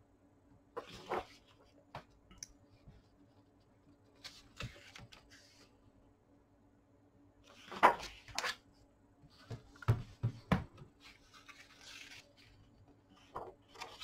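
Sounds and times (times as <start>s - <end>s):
light paper rustle: 3.9s - 5.8s, 11.0s - 14.0s
book page turning: 4.2s - 5.7s, 11.0s - 14.0s.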